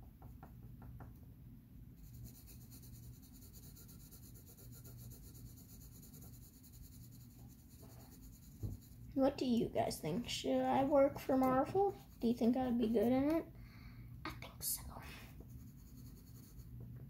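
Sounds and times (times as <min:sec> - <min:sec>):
pencil scratching on paper: 0:02.0 - 0:09.1, 0:10.3 - 0:13.2, 0:15.5 - 0:16.7.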